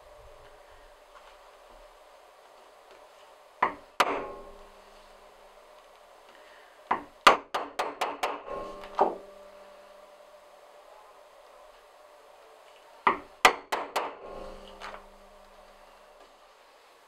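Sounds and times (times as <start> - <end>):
mallet striking steel punch: 3.6 - 4.8, 6.9 - 9.6, 13.1 - 15.6.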